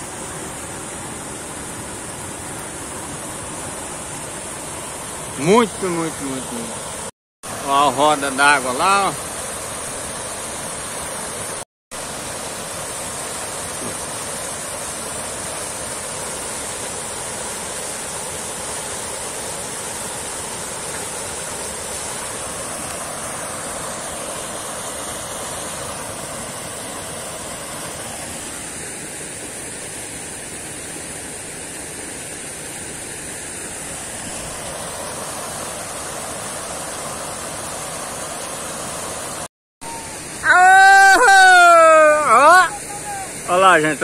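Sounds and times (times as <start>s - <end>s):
water pouring off water wheel: 7.6s - 10.7s.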